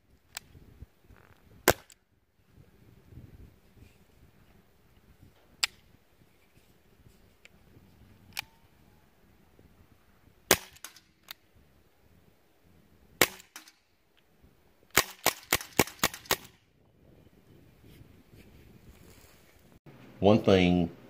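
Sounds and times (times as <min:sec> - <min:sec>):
airsoft pistol shots: 0:01.6 - 0:01.9, 0:10.5 - 0:11.1, 0:13.2 - 0:13.7, 0:14.9 - 0:16.5.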